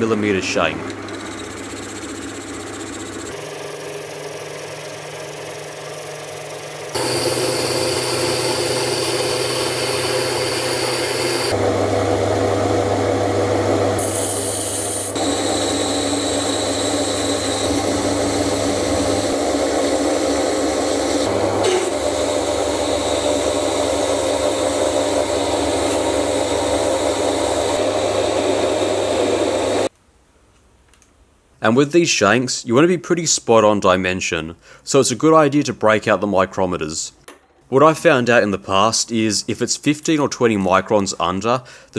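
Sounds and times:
metal lathe motor running: 0.8s - 29.9s
hiss of cutting tool: 7.0s - 11.6s, 14.0s - 15.8s.

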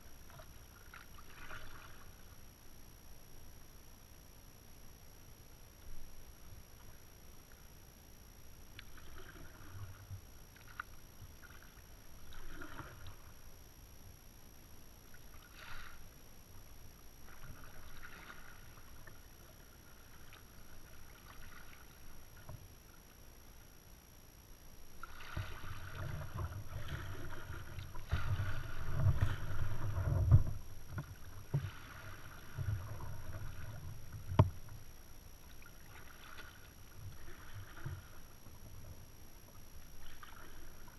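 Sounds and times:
paddle splashing in water: 0.3s - 2.1s, 8.8s - 13.3s, 17.3s - 22.5s, 25.0s - 34.7s, 35.5s - 38.3s, 40.0s - 40.9s
paddle knocking kayak: 25.0s - 40.9s.

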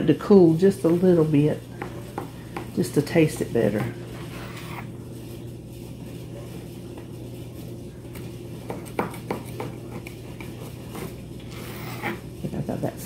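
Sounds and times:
steady low hum: 0.0s - 13.0s
bread knife sawing through loaf: 10.8s - 12.2s.

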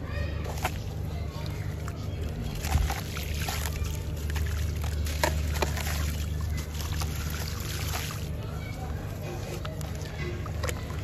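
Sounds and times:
low steady hum: 0.0s - 11.0s
bits splashing into water: 0.4s - 8.4s.

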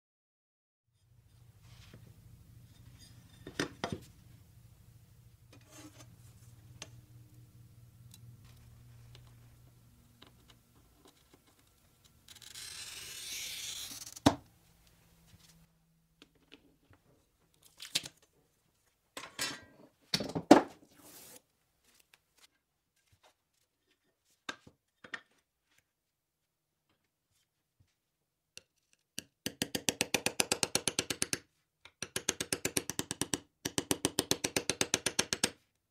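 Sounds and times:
glass cutter scoring glass: 12.3s - 14.4s.

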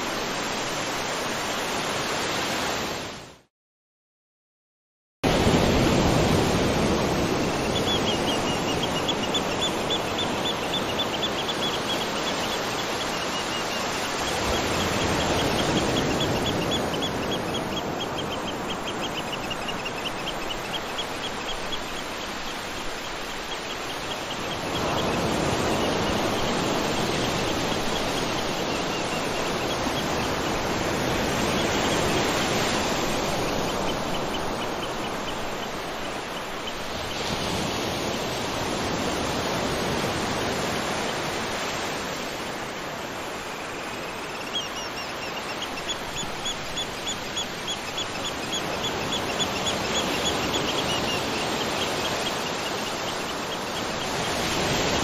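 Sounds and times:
rushing water: 0.0s - 3.5s, 5.2s - 55.0s
high-pitched ticking animal call: 7.7s - 26.5s, 43.6s - 54.1s.

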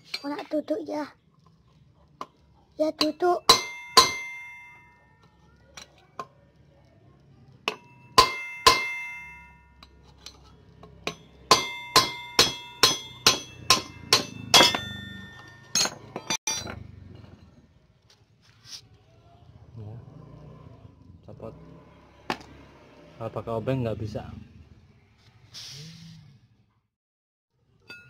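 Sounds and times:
steel bar striking metal rod: 3.0s - 4.8s, 7.7s - 10.0s, 11.0s - 16.8s.

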